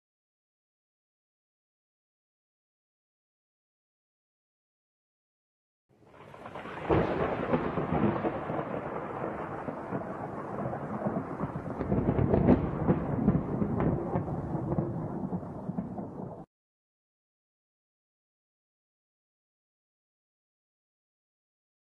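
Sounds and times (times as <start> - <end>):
thunder rumbling and cracking: 6.2 - 16.5.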